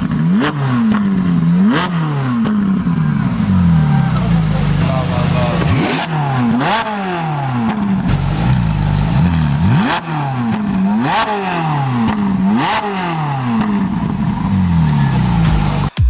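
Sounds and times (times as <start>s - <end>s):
sports car engine revving: 0.0s - 16.0s.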